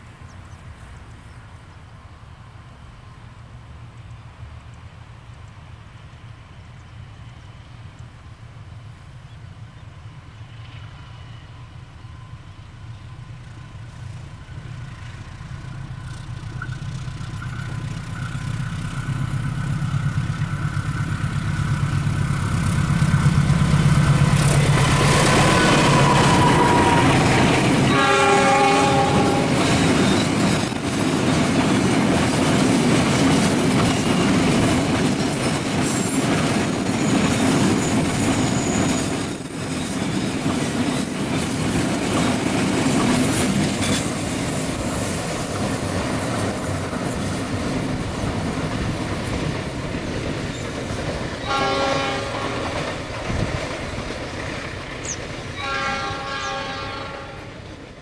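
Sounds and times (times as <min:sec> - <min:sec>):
locomotive engine rumble: 0:11.6 - 0:58.0
wheels clacking over rail joints: 0:14.5 - 0:56.9
train horn blast: 0:25.3 - 0:29.9, 0:51.4 - 0:52.9, 0:55.6 - 0:57.6.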